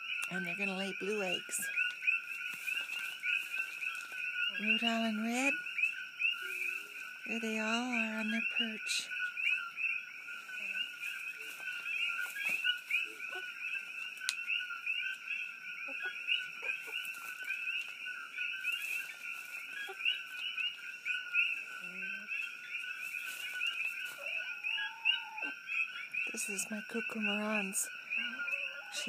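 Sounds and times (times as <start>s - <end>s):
frog chorus: 0.0s - 29.0s.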